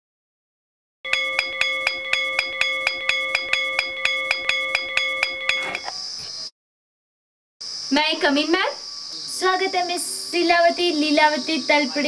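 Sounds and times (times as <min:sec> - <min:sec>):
metal bell ringing: 0:01.1 - 0:05.9.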